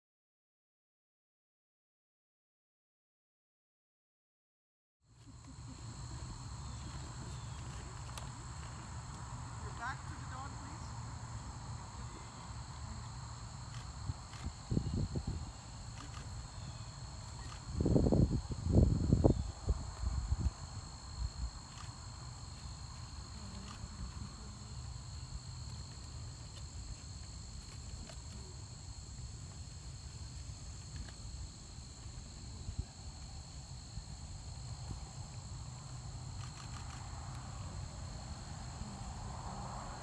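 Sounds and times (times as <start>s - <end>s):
crickets chirping: 5.0s - 40.0s
wind rumble on microphone: 14.0s - 15.6s, 17.5s - 21.6s.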